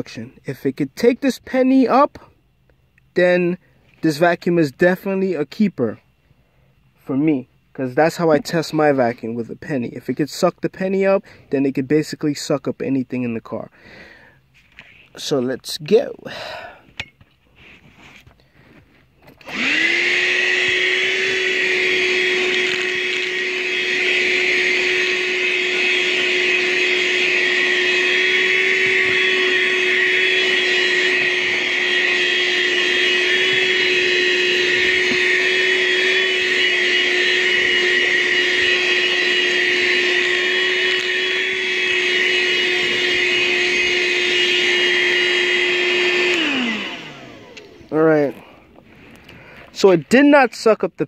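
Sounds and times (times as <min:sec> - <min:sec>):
handheld vacuum motor whine: 0:19.2 - 0:49.7.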